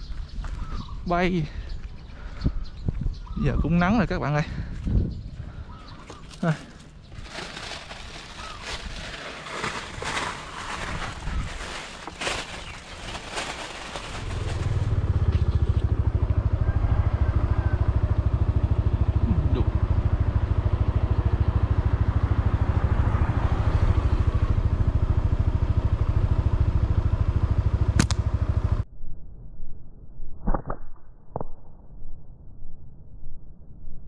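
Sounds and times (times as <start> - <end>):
small motorbike engine running: 6.0 - 28.8.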